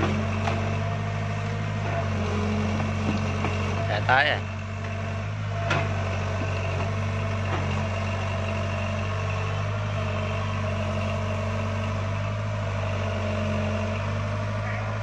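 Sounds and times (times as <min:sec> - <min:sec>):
excavator diesel engine running: 0:00.0 - 0:15.0.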